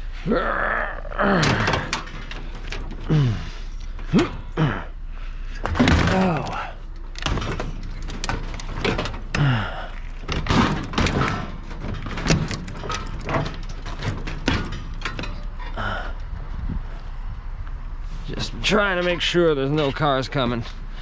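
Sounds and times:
metal bicycle frame clanking: 1.3s - 4.6s, 5.6s - 16.3s.

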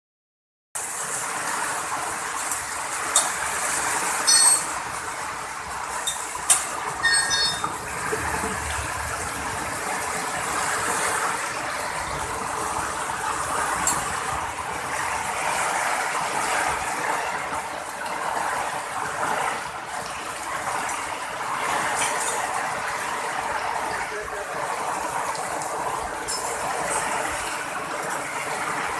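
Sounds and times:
heavy rain on a roof: 0.8s - 28.9s
water streaming off roof: 0.8s - 28.9s
brief high-pitched tones: 7.0s - 7.7s.

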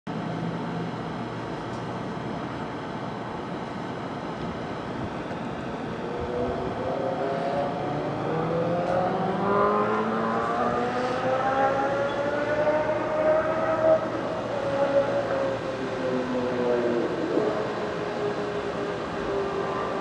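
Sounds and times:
street rumble at night: 0.1s - 20.0s
rising pitched whine: 5.2s - 20.0s.

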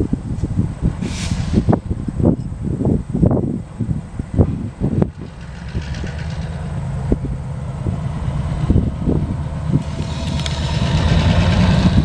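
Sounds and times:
locomotive diesel engine running: 3.6s - 12.0s
car driving past: 5.1s - 12.0s.

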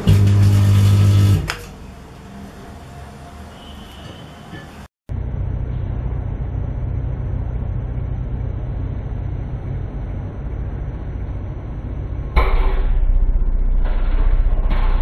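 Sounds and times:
microwave oven humming: 0.0s - 1.6s, 5.1s - 12.4s
harsh buzzing: 0.0s - 1.7s.

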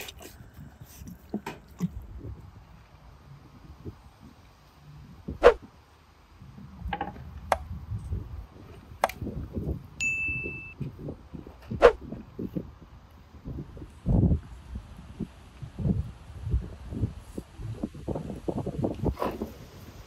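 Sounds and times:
electronic chime: 10.0s - 10.8s.

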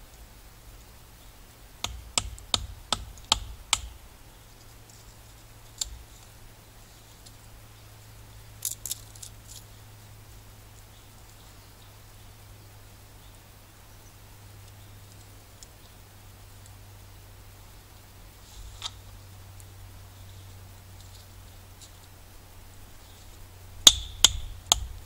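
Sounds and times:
wood splitting knocks: 1.8s - 4.0s, 23.9s - 25.0s.

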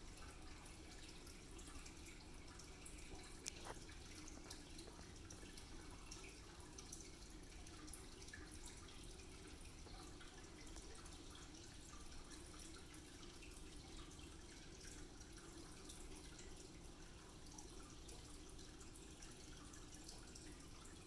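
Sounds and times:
low room hum: 0.0s - 21.0s
cat licking wet clicks: 3.1s - 3.8s.

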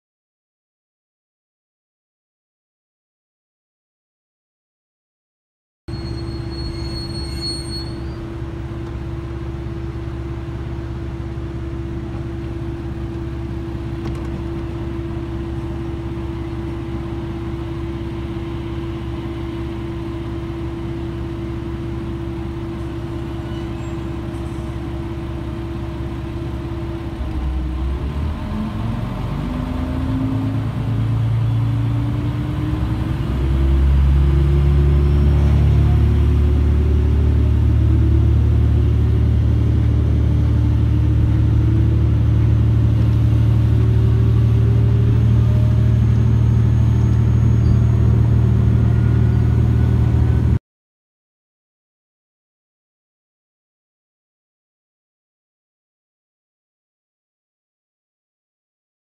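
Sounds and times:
train hum: 7.9s - 50.6s
train traction sound rising: 21.8s - 50.6s.

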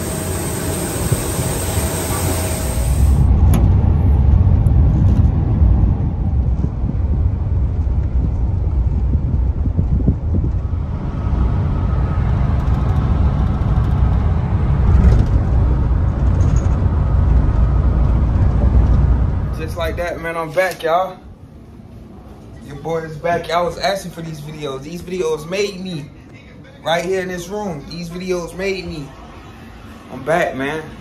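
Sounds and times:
vehicle cabin road and engine rumble: 0.0s - 20.1s.

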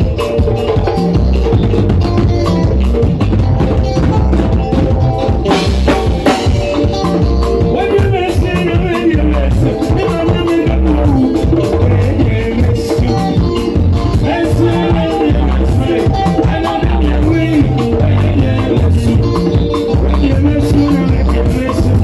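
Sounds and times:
hand drums: 0.0s - 22.0s
live band playing: 0.0s - 22.0s
man singing into microphone: 7.7s - 22.0s.

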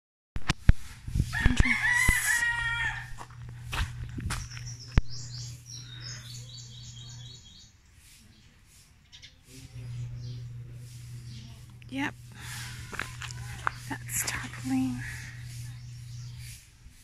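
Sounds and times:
rooster crowing: 1.3s - 3.6s
small bird chirping: 3.9s - 16.7s.

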